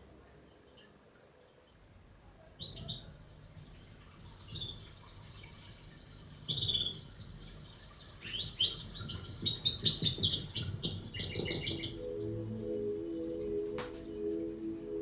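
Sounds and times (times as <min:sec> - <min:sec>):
television sound: 0:00.0 - 0:15.0
canary chirping: 0:02.4 - 0:03.3, 0:04.3 - 0:05.0, 0:06.4 - 0:15.0.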